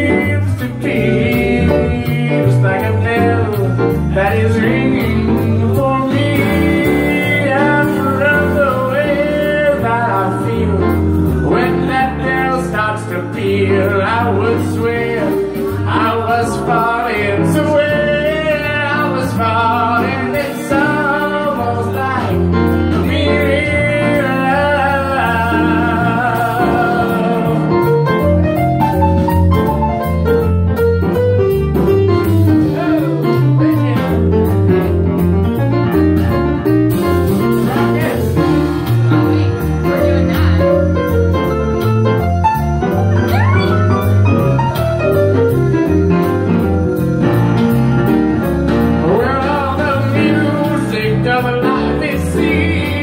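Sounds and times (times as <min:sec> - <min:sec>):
person singing: 0:00.0 - 0:28.3, 0:43.2 - 0:53.0
piano chords: 0:00.0 - 0:53.0.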